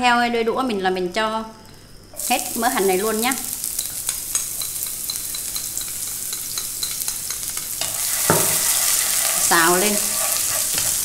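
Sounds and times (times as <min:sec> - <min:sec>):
shallots sizzling in hot oil: 0:02.2 - 0:11.0.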